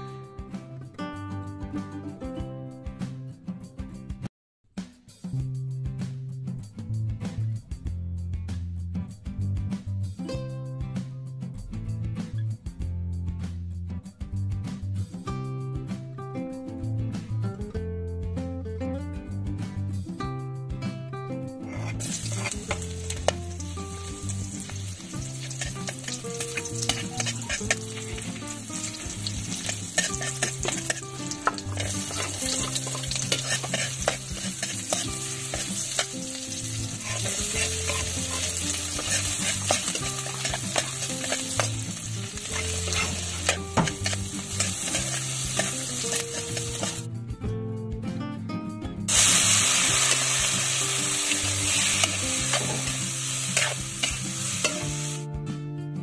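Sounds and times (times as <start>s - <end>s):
spatula scraping a pan: 21.6s - 23.4s, 24.6s - 47.0s, 51.2s - 55.0s
food sizzling in a wok: 21.6s - 47.1s, 49.1s - 55.3s.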